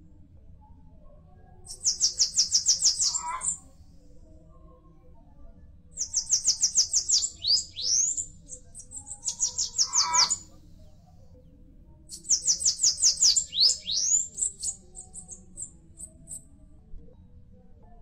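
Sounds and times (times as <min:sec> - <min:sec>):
bird singing high thin notes: 0:01.8 - 0:03.6, 0:06.0 - 0:08.2, 0:09.0 - 0:10.4, 0:12.3 - 0:14.3.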